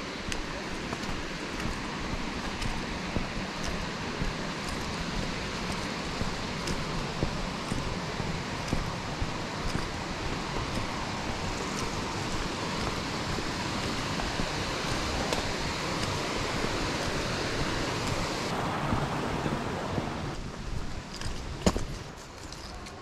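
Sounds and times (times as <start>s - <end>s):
brook running over rocks: 0.0s - 23.0s.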